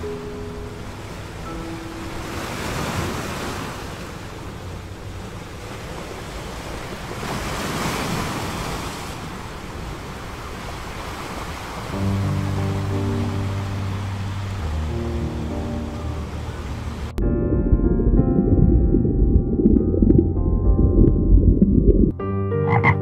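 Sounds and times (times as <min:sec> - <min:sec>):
music: 0:00.0 - 0:03.1, 0:12.0 - 0:23.0
surf washing onto beach: 0:00.8 - 0:15.1.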